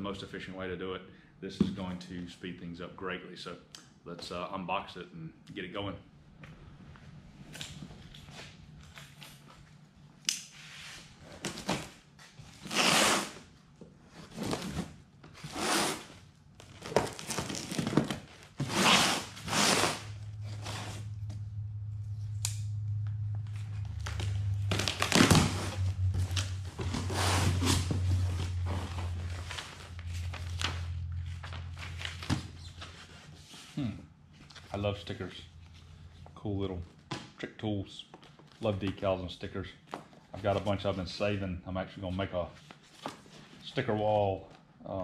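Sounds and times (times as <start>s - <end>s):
low steady hum: 0.0s - 42.8s
knife slitting packing tape: 12.6s - 13.4s, 16.8s - 20.1s
cardboard flaps scraping and rustling: 24.0s - 33.5s.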